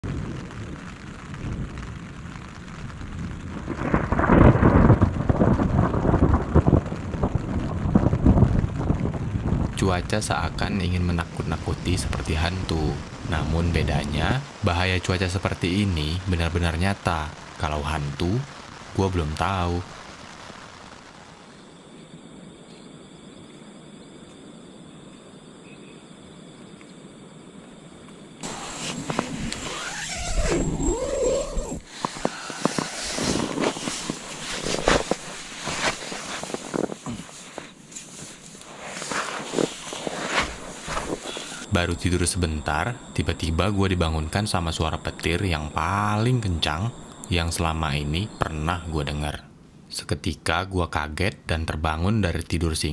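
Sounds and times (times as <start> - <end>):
rain falling: 0.0 - 21.7, 27.8 - 49.3
thunder rumbling and crackling: 0.0 - 21.7, 28.3 - 49.4
low outdoor hiss: 0.0 - 52.9
rush of noise with sharp clicks: 28.4 - 41.7.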